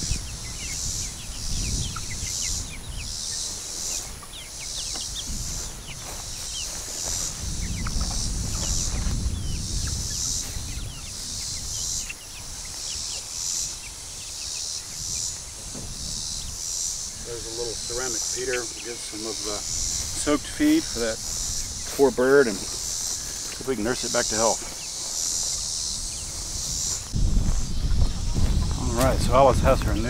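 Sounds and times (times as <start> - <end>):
chicks peeping: 0.0 - 30.0
insect chorus pulsing: 0.0 - 30.0.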